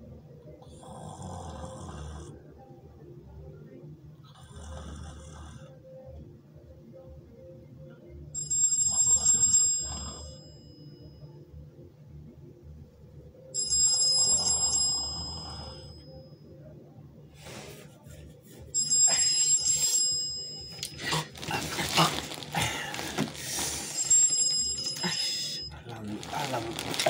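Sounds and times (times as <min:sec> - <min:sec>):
phone alarm ringing: 0:08.4 - 0:11.4, 0:13.5 - 0:16.5, 0:18.8 - 0:21.4, 0:23.7 - 0:25.9
shuffling noises: 0:17.4 - 0:18.8, 0:20.8 - 0:25.0.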